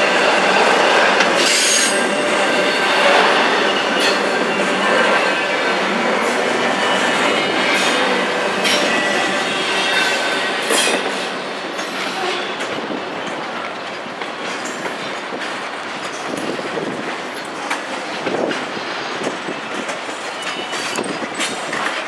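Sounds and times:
train wheels rumbling on rail: 0:00.0 - 0:22.0
wheels clicking over rail joints: 0:12.6 - 0:22.0.

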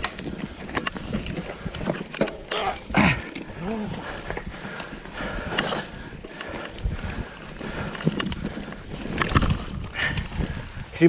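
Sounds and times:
bike rattling and knocking: 0:00.0 - 0:11.0
bike tyres on dirt and leaves: 0:00.0 - 0:11.0
wind on microphone: 0:02.8 - 0:11.0.

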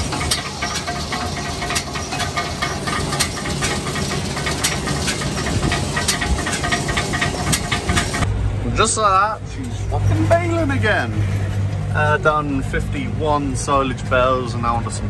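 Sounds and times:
baler mechanical clatter: 0:00.0 - 0:08.3
sharp clicks and rattles: 0:00.0 - 0:08.3.

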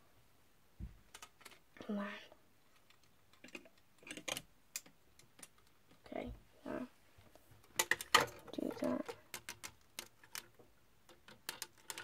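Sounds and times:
plastic pieces clicking: 0:01.1 - 0:01.6, 0:02.7 - 0:06.0, 0:07.7 - 0:12.0.

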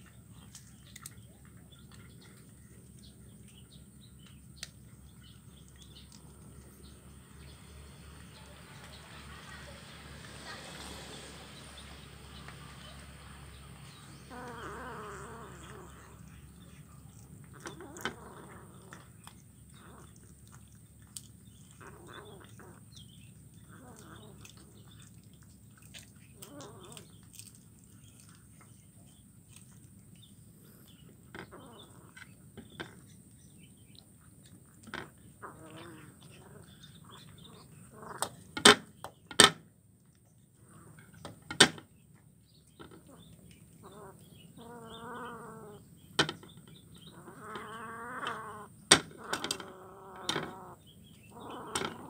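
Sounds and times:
kitten eating: 0:00.0 - 0:38.5
kitten crunching fish bones: 0:13.8 - 0:32.3.

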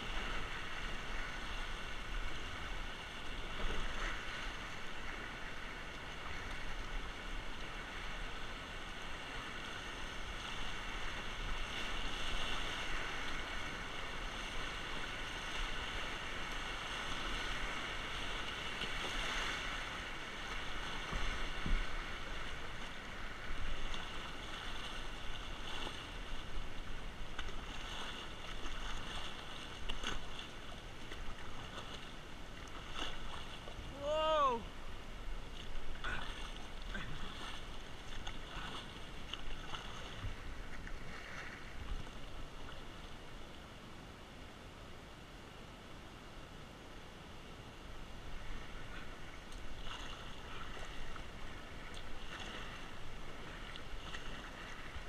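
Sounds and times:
water splashing against kayak: 0:00.0 - 0:45.6, 0:47.2 - 0:55.0
whitewater rapids rushing: 0:33.2 - 0:34.8.

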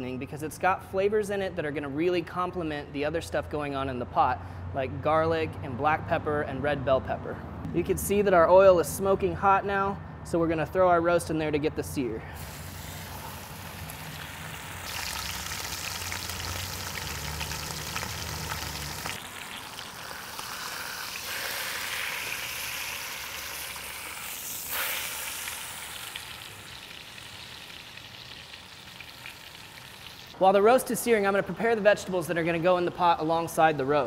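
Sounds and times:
meat sizzling in hot oil: 0:12.4 - 0:30.4.

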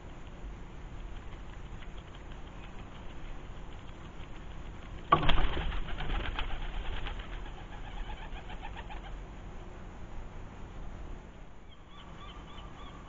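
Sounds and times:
pigeon wings flapping: 0:01.0 - 0:09.1.

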